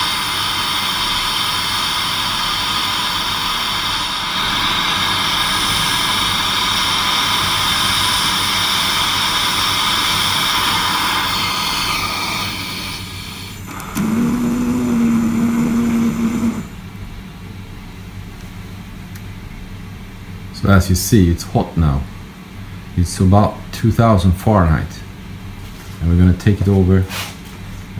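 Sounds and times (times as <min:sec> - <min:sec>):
torch flame hissing: 0:00.0 - 0:16.9.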